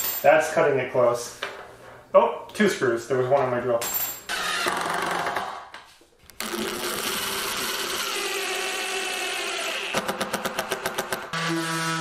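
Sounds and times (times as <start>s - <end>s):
cordless drill motor whine: 6.4s - 10.0s.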